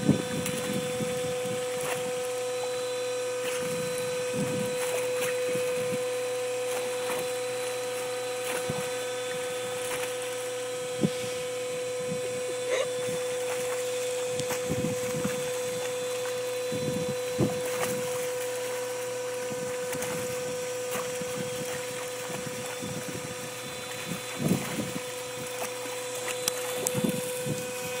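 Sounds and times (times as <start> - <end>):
constant hum: 0.0 - 28.0
water jet spraying: 0.0 - 28.0
dog splashing in water: 0.4 - 2.2, 6.7 - 10.6, 13.0 - 16.4, 19.6 - 23.1, 23.8 - 26.9.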